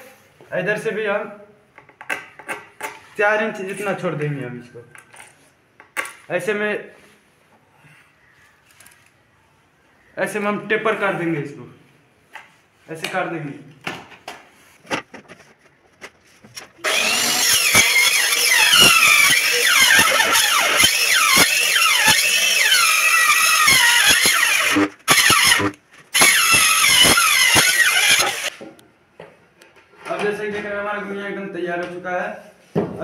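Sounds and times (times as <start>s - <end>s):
circular saw cutting plywood: 16.8s - 28.6s.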